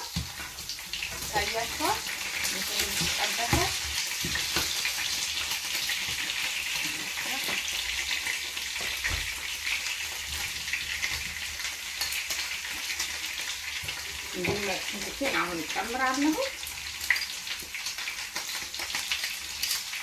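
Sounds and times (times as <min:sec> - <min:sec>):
meat sizzling in oil: 0:00.0 - 0:20.0.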